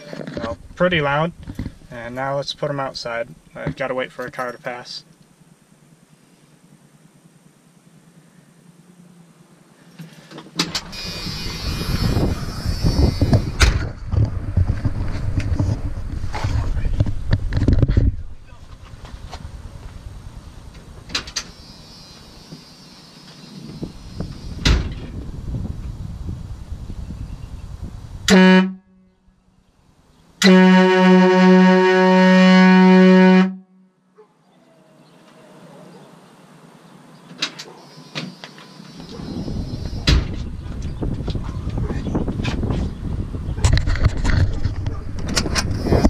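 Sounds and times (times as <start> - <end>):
high steady hiss: 0.0 - 14.0, 16.0 - 28.7, 35.0 - 41.0
camera handling and wind rumble: 1.4 - 1.9, 10.0 - 20.0, 39.1 - 46.0
air horn blasts: 28.3 - 29.3, 30.4 - 34.0.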